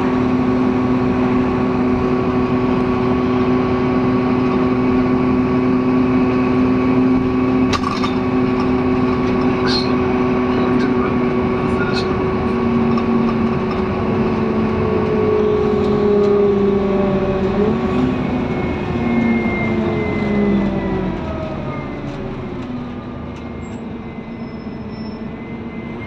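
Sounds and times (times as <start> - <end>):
bus diesel engine pulling: 0.0 - 26.0.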